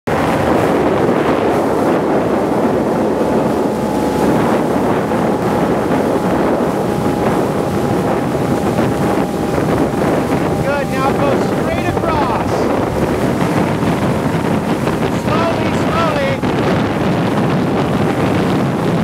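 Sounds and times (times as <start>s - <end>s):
boat motor running: 0.1s - 19.0s
breaking wave churning: 0.1s - 19.0s
wind on microphone: 0.1s - 19.0s.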